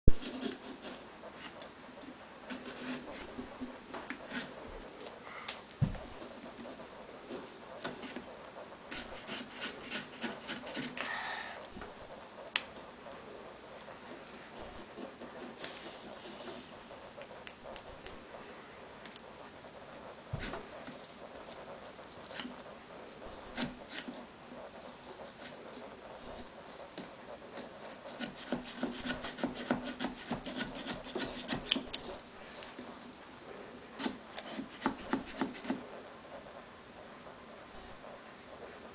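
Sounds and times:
saws rasping through pumpkin: 0:08.9 - 0:11.6, 0:28.0 - 0:31.8.

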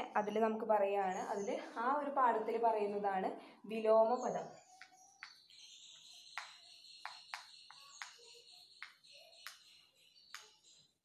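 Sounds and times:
chalk tapping and scratching on board: 0:06.4 - 0:09.6.

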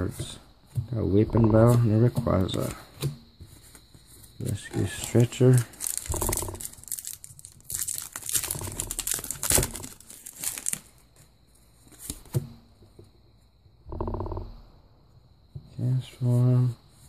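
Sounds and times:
handling cards: 0:01.6 - 0:12.3
foil pack tearing and crinkling: 0:04.9 - 0:11.0.

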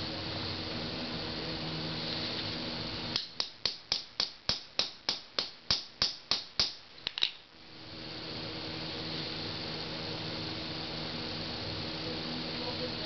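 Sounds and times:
hammer striking steel punch: 0:03.2 - 0:06.8.

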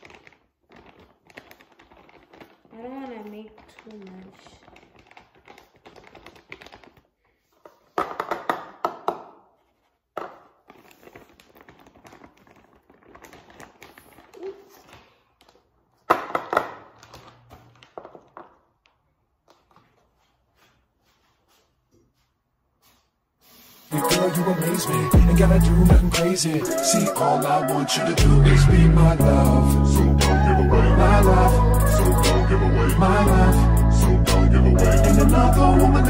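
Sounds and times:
plastic packet rustling and crackling: 0:00.0 - 0:08.0, 0:10.4 - 0:20.1.

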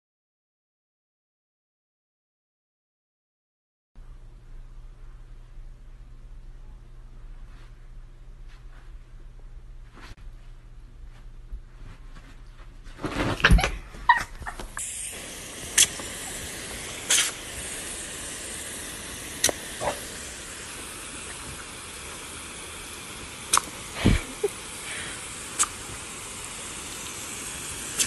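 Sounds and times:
hose spray nozzle hissing: 0:14.1 - 0:28.0.

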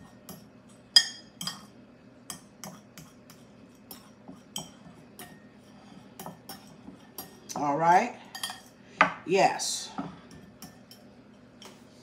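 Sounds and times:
fork clinking against glass bowl: 0:00.0 - 0:01.7, 0:02.3 - 0:07.6, 0:08.2 - 0:08.8, 0:10.3 - 0:11.4.

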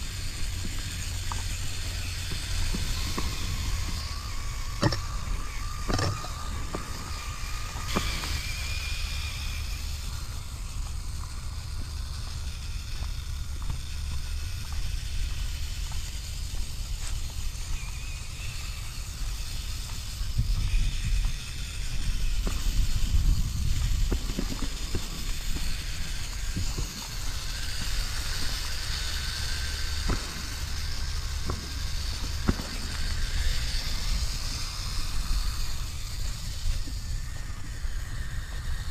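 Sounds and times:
electric motor whining: 0:00.0 - 0:38.9
tyres clicking on stones: 0:00.4 - 0:17.8.

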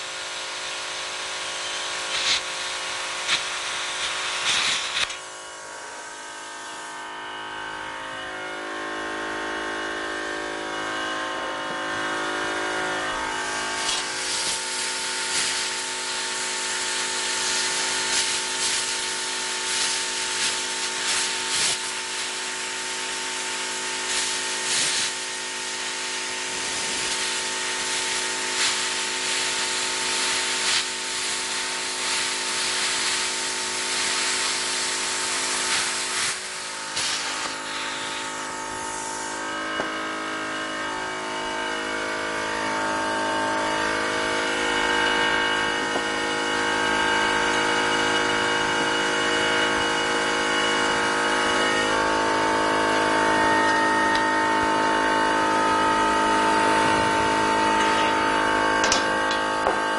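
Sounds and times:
plasma cutter hissing: 0:00.0 - 0:05.3, 0:13.2 - 0:40.2, 0:53.0 - 0:59.9
machine hum: 0:00.0 - 0:59.9.

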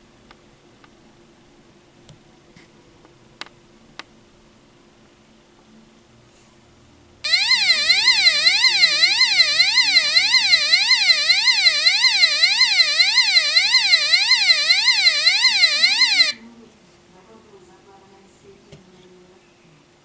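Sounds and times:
electronic siren wail: 0:07.3 - 0:16.4.

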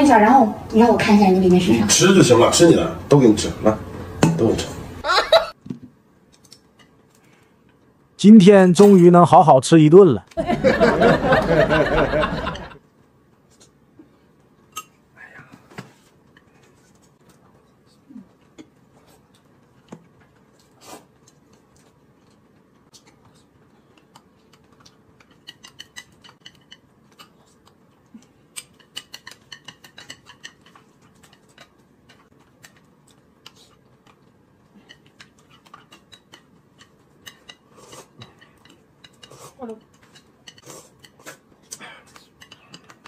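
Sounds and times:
chopsticks tapping a plate: 0:25.2 - 0:27.2, 0:28.6 - 0:32.8, 0:34.9 - 0:41.2.

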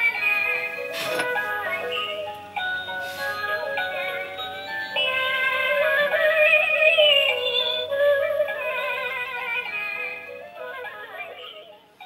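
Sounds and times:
electronic music wavering tones: 0:01.4 - 0:08.8.

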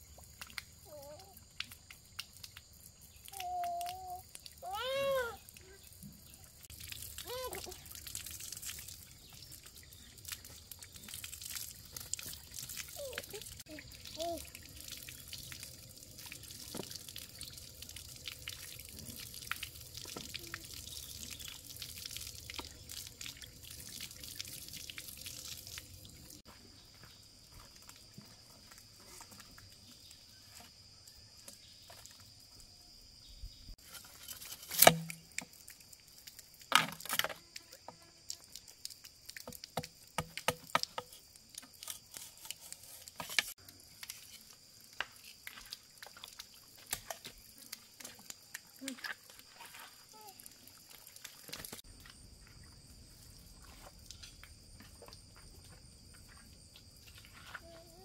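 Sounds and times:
water from hose splashing on rock: 0:00.0 - 0:26.5, 0:33.8 - 0:52.2
machete chopping bamboo: 0:34.7 - 0:35.2.

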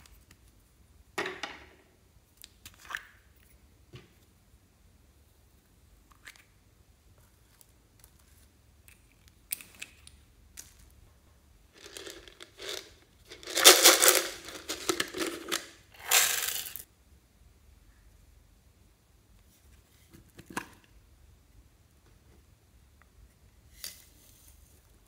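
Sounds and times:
plastic beads rattling: 0:11.8 - 0:16.8.

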